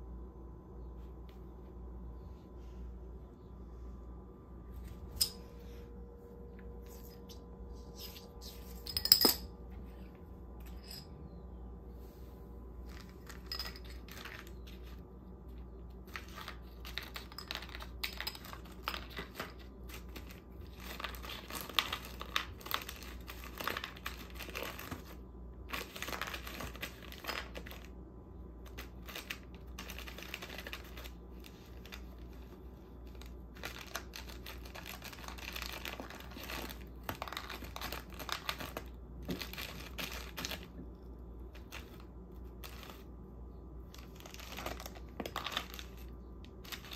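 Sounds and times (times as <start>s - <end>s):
plastic wrapping crinkling: 28.8s - 40.8s, 43.9s - 46.9s.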